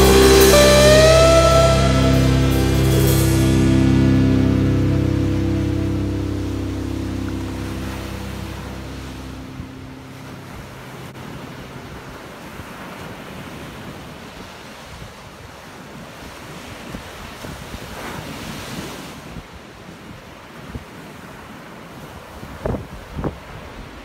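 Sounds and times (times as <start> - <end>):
song held notes: 0.0 - 11.9
ocean surf washing: 0.0 - 24.0.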